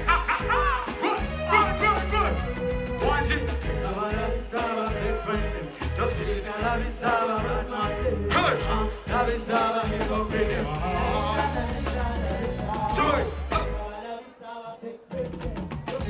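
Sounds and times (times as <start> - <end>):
band with heavy bass beat: 0.0 - 13.9
man singing into a microphone: 3.8 - 16.0.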